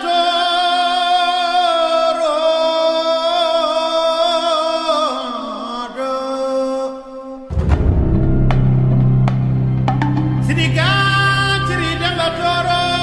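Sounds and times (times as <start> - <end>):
steady drone: 7.5 - 13.0.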